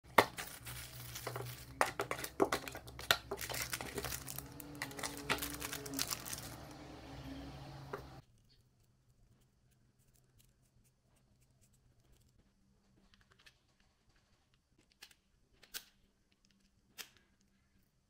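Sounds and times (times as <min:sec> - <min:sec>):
cardboard box being handled: 0:00.1 - 0:06.8
plastic pieces clicking on table: 0:00.1 - 0:06.8
low steady hum: 0:00.1 - 0:08.2
plastic bags crinkling: 0:00.1 - 0:08.2.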